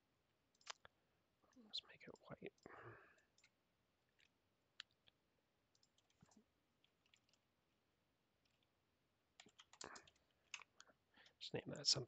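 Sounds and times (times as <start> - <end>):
mouse and keyboard clicks: 0.5 - 0.9, 4.2 - 7.4.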